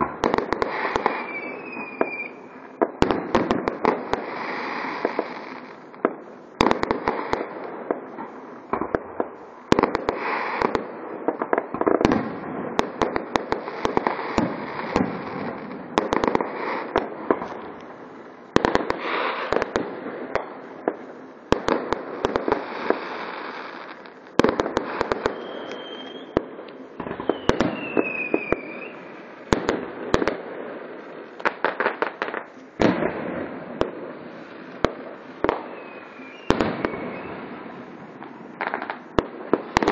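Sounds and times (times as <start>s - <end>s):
fireworks bangs: 0.0s - 39.9s
fireworks crackle: 0.0s - 39.9s
falling whistle: 1.2s - 2.4s, 25.3s - 26.4s, 27.2s - 29.0s, 35.6s - 37.4s.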